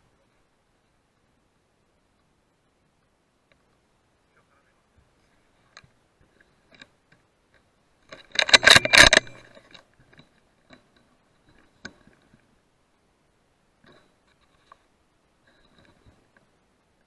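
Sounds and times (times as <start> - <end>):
faint ticks: 2.1 - 2.4, 3.0 - 3.9, 13.8 - 17.0
rifle handling scraping and clicks: 7.6 - 12.4.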